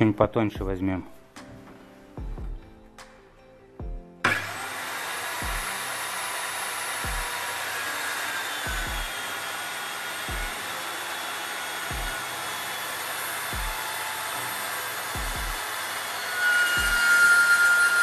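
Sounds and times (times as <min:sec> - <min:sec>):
circular saw running: 0:04.2 - 0:18.0.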